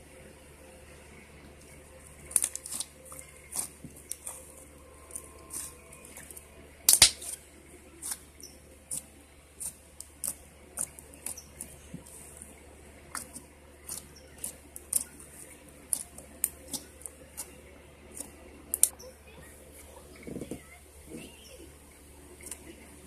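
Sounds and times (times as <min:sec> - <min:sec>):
slime popping and clicking: 0:06.9 - 0:07.4.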